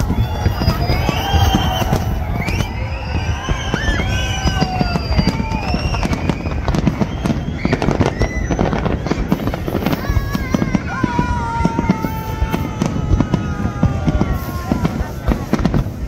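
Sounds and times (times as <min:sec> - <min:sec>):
whistles: 0:00.0 - 0:10.0
crowd shouting: 0:00.0 - 0:16.0.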